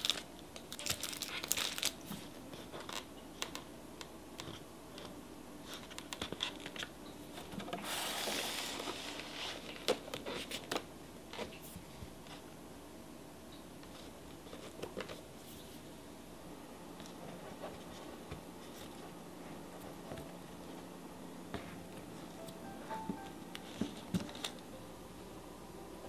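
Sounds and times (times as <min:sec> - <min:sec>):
packaging rustle: 0:00.0 - 0:03.1, 0:07.6 - 0:10.8.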